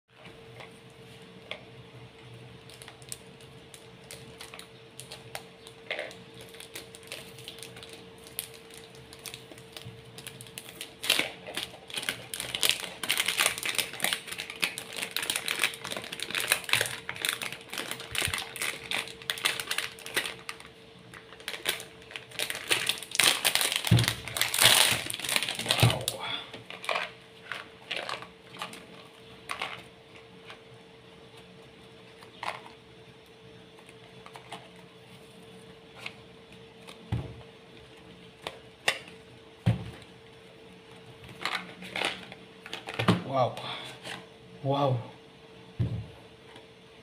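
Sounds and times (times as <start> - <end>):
plastic wrap crinkling: 2.6 - 29.8.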